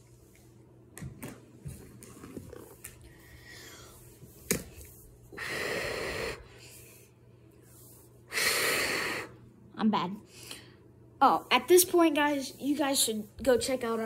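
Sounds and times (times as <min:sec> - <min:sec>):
breathy puffs of air: 0:05.3 - 0:07.1, 0:08.2 - 0:09.4.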